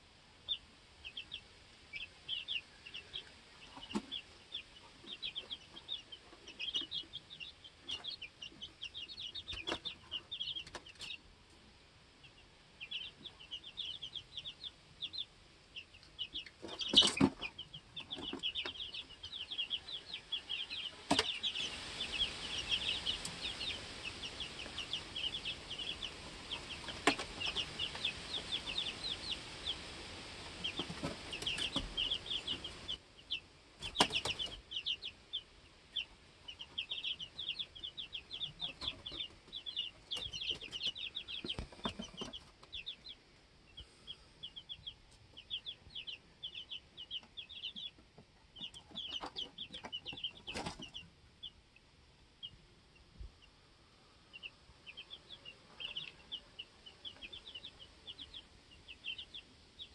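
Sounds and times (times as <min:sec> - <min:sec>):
chicks peeping: 0:00.4 - 0:59.9
wings fluttering: 0:33.8 - 0:34.6.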